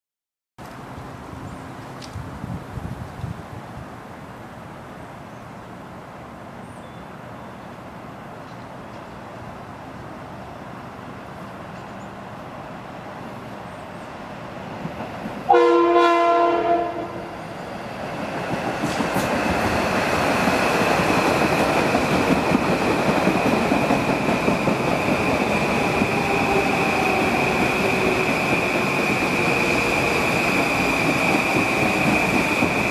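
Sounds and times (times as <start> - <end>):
train running noise: 7.2 - 32.9
train horn: 15.5 - 17.4.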